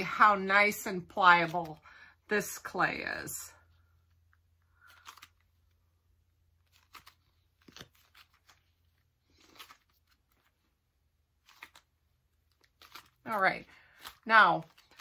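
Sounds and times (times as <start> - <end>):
clay tearing and crackling: 3.8 - 15.0.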